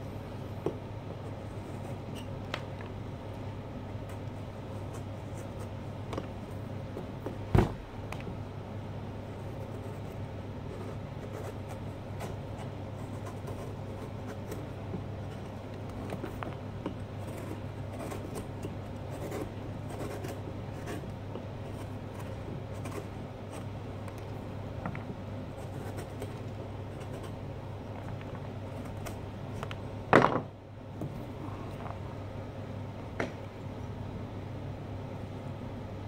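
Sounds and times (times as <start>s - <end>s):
steady low hum: 0.0s - 36.0s
carving tool scraping pumpkin: 9.4s - 24.3s, 25.5s - 27.4s.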